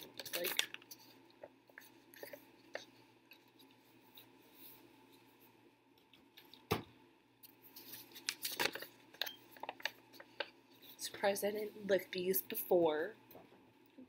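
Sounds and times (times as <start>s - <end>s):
crisp paper rustles and clicks: 0.0s - 3.8s, 7.7s - 10.5s.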